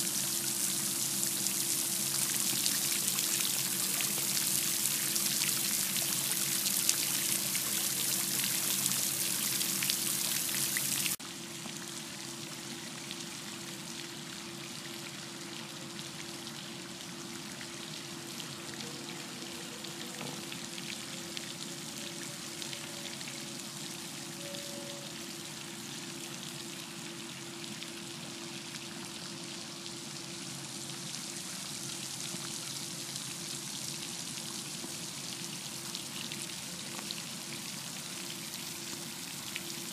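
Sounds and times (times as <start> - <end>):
fountain splashing into pool: 0.0 - 14.0, 25.4 - 39.9
low steady hum: 0.0 - 39.9.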